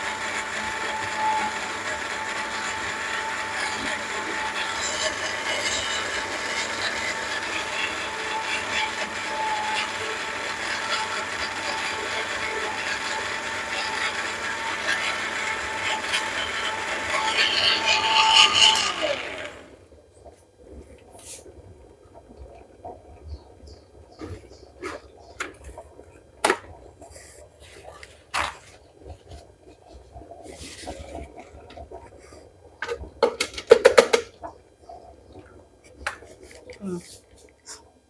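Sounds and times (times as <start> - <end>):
blender running: 0.0 - 19.8.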